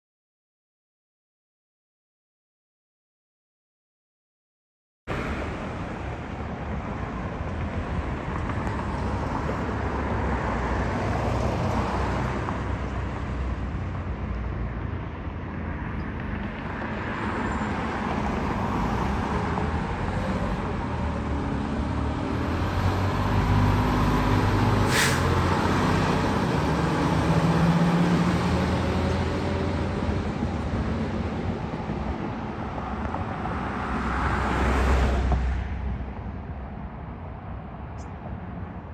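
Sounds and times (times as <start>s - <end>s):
truck engine driving off: 19.7s - 32.4s.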